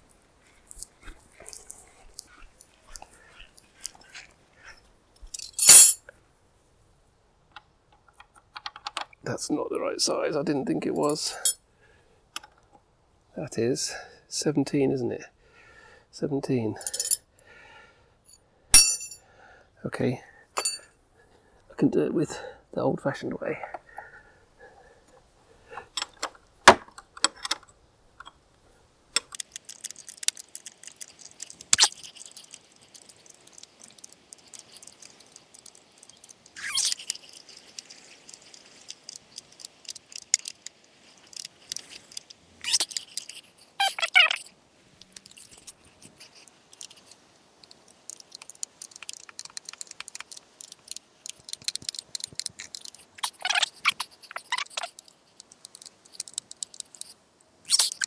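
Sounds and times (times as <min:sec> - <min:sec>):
metal hand tools clicking on bolts: 0:05.4 - 0:06.0.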